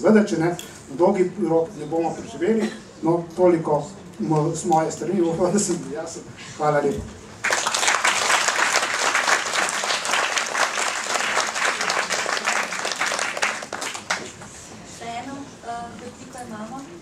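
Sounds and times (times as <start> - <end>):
audience applauding: 7.4 - 14.5.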